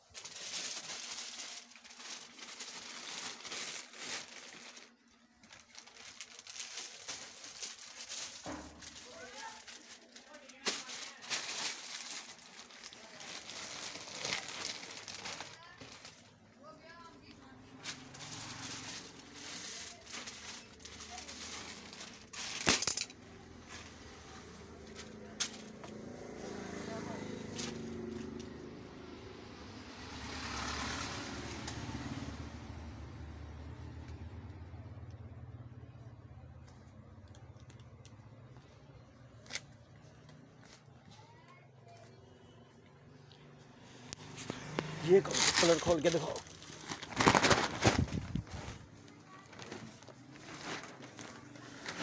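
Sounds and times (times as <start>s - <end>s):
plastic wrapping crinkling: 0.0s - 29.2s, 44.1s - 52.0s.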